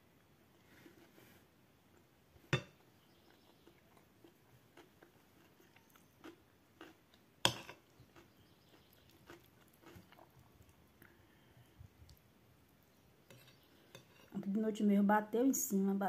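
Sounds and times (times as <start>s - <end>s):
soft chewing: 0.2s - 14.4s.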